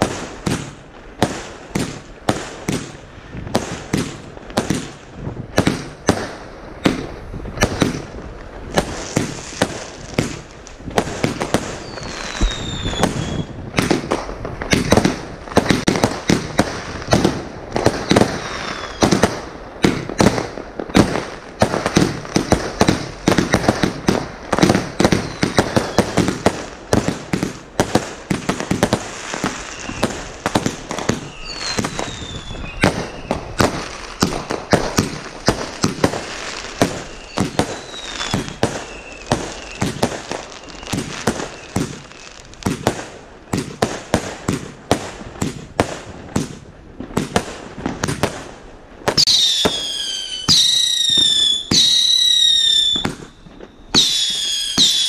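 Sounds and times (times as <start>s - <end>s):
firework launch thumps and bursts: 0.0s - 48.4s
falling firework whistles: 8.7s - 21.1s, 24.6s - 26.5s, 28.4s - 42.9s, 49.1s - 55.0s.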